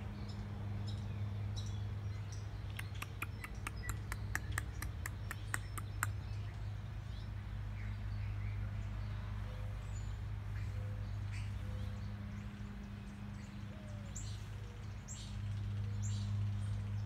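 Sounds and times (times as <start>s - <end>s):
animal clicking chirp calls: 2.7s - 6.4s.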